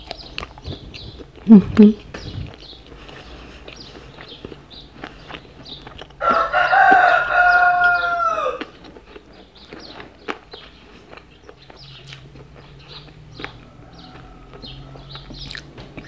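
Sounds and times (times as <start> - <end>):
chewing clicks: 0.0 - 7.2, 7.8 - 16.0
drawn-out animal call: 12.4 - 15.5.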